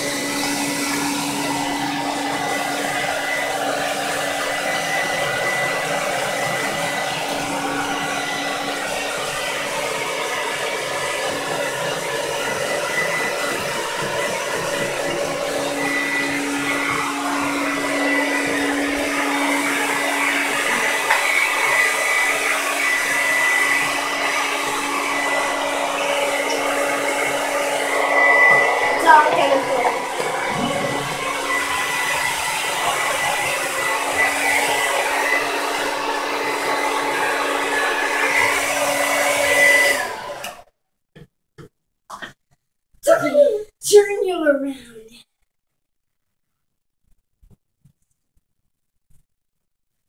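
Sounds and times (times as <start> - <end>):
hair dryer running: 0.0 - 40.7.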